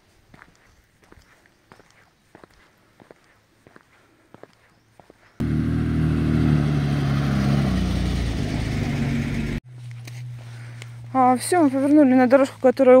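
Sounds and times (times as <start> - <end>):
faint footsteps on dirt: 0.0 - 5.4, 9.6 - 13.0
vehicle engine running: 5.4 - 12.7.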